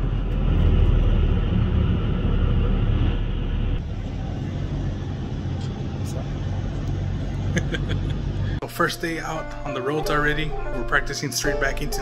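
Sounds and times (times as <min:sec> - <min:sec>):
diesel truck engine rumble: 0:00.0 - 0:09.6.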